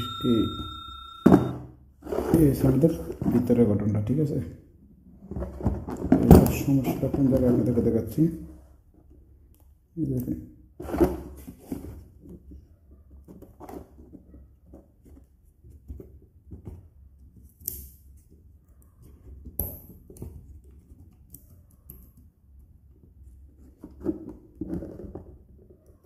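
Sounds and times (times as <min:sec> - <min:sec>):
low steady hum: 0:00.0 - 0:01.5.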